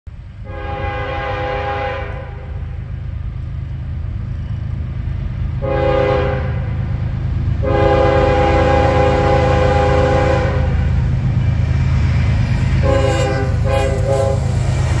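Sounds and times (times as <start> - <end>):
low rumble of train: 0.1 - 15.0
locomotive air horn blasts: 0.4 - 2.8, 5.6 - 6.8, 7.6 - 10.9, 12.7 - 15.0.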